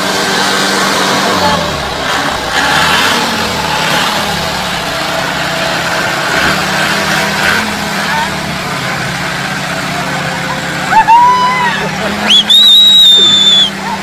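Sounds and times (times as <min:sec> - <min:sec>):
tractor engine running under load: 0:00.0 - 0:14.0.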